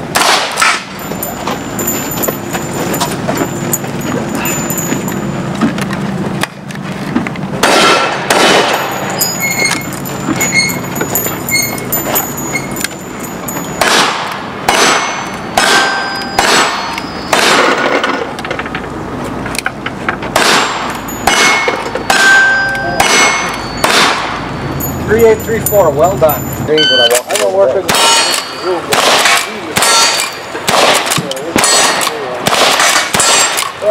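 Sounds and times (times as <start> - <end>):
shotgun shots: 0.0 - 1.0, 7.6 - 9.1, 13.8 - 18.3, 20.3 - 24.4, 27.8 - 33.9
steel targets ringing: 0.0 - 5.6, 7.6 - 18.4, 20.3 - 33.9.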